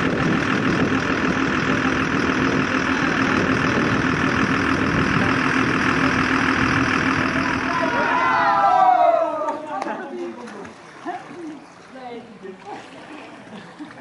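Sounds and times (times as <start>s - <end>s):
vehicle engine and road noise: 0.0s - 9.0s
constant low hum: 0.0s - 14.0s.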